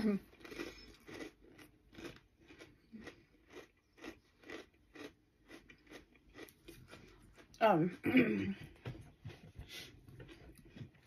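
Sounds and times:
chewing crunchy chips: 0.0s - 7.6s.

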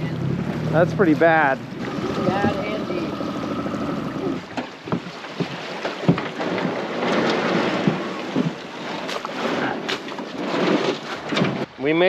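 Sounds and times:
river water moving: 0.0s - 12.0s
wind on microphone: 1.6s - 5.0s
sharp knocks: 4.6s - 9.2s.

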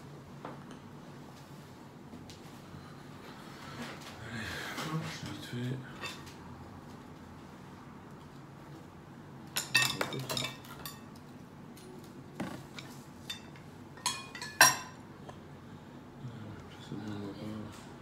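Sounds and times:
cutlery clinking against plates: 6.0s - 6.3s, 9.5s - 11.2s, 12.7s - 15.0s.

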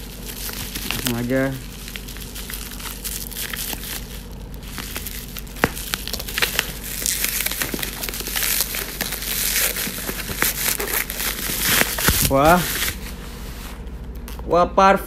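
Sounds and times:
gift wrapping crinkling: 0.0s - 13.6s
sharp paper snap: 4.8s - 13.0s.

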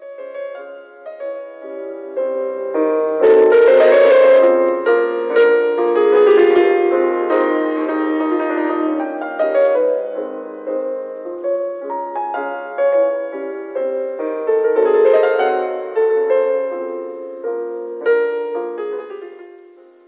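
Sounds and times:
slow solo piano: 0.0s - 20.0s.

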